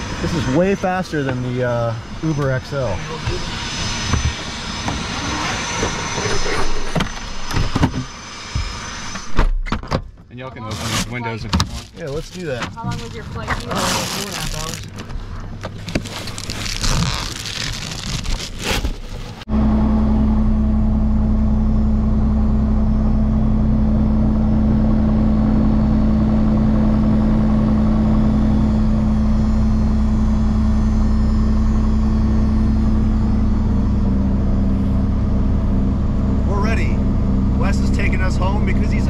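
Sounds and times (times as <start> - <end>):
airplane engine and propeller drone: 0.0 - 9.6, 19.4 - 39.0.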